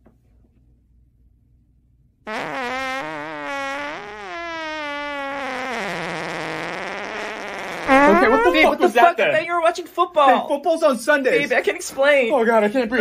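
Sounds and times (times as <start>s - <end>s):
cartoon fart sound effect: 2.3s - 8.8s.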